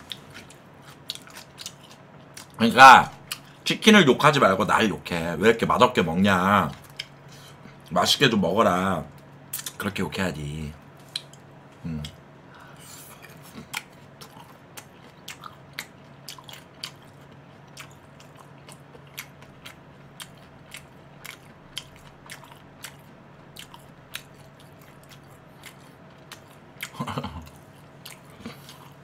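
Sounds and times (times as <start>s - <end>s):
person chewing crispy food: 0.0s - 2.6s, 6.7s - 7.9s, 11.0s - 29.0s.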